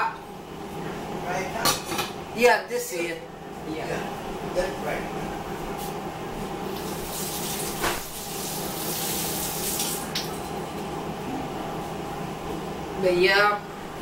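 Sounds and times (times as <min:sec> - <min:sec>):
water running into sink: 0:06.7 - 0:10.6.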